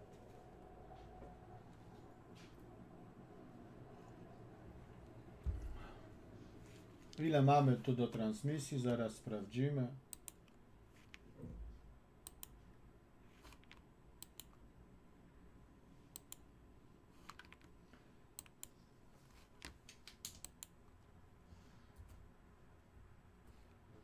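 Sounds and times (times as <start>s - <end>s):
computer keyboard and mouse clicks: 10.1s - 11.3s, 12.2s - 12.6s, 13.4s - 14.6s, 16.2s - 16.4s, 17.2s - 17.7s, 18.4s - 18.8s, 19.6s - 20.8s.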